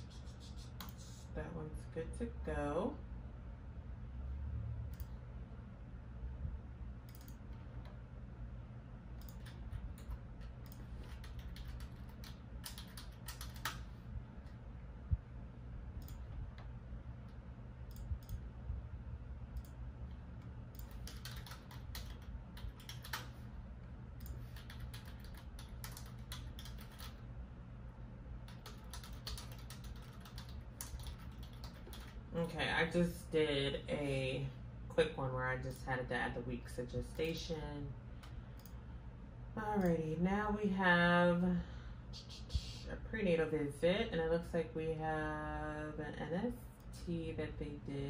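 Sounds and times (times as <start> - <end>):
low hum: 0.0 - 48.0
typing on keyboard: 7.1 - 7.9, 9.2 - 13.9, 20.7 - 23.4, 24.2 - 27.2, 28.5 - 32.2.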